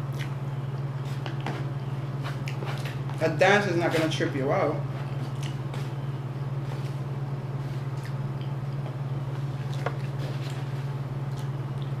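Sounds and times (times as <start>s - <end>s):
steady low hum: 0.0s - 12.0s
chewing clicks: 0.1s - 0.9s, 7.9s - 9.0s, 11.3s - 12.0s.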